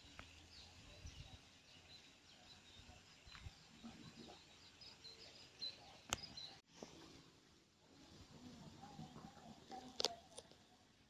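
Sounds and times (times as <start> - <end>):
small birds chirping: 0.0 - 7.2.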